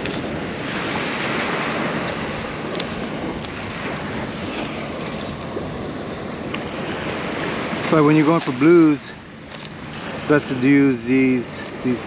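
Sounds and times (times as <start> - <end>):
wind noise on microphone: 0.0 - 8.5
surf: 0.0 - 12.0
light clicks: 2.7 - 3.6.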